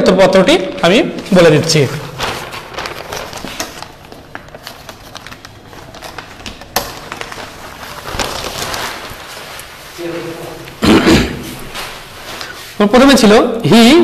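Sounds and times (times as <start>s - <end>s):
rustling from handling: 1.2s - 10.8s, 11.4s - 12.9s.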